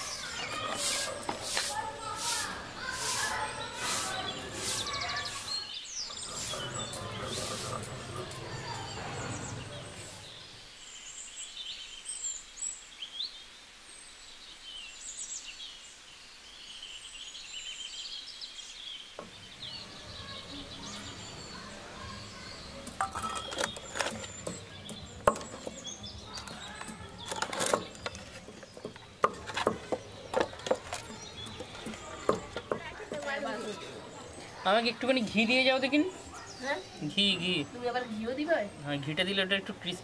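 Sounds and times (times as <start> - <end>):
small birds chirping: 0.0 - 40.0.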